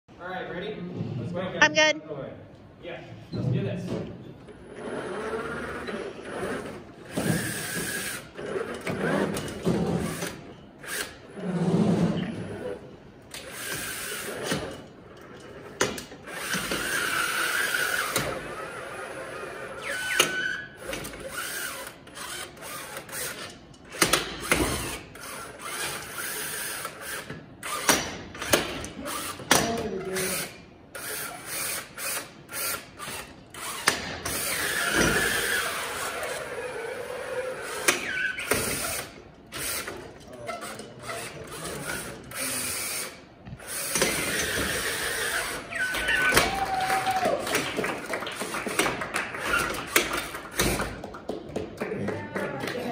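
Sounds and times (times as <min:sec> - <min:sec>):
motors and gearboxes whining: 0:31.4 - 0:40.0.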